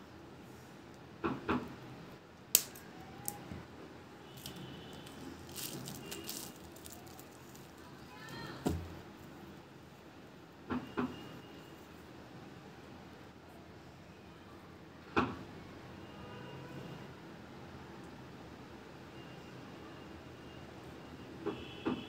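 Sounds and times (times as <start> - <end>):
cable jacket rustling: 4.4 - 9.0.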